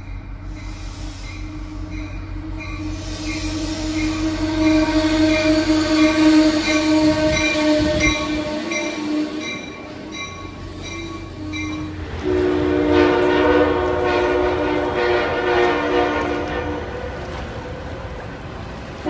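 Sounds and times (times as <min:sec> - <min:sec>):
second train horn chord: 0:01.5 - 0:09.8, 0:11.4 - 0:17.2
train horn chord: 0:01.5 - 0:10.1, 0:11.3 - 0:17.3.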